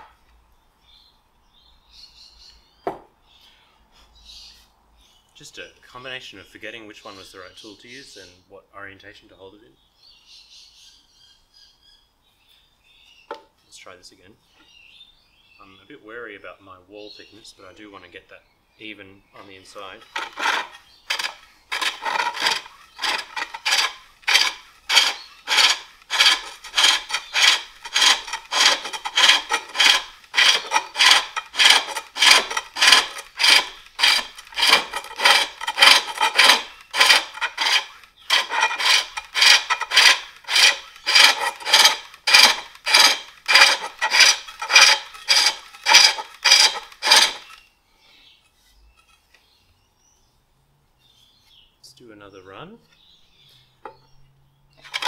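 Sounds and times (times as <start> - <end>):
hook tool rasping wood on lathe: 20.0 - 47.6, 54.8 - 55.0.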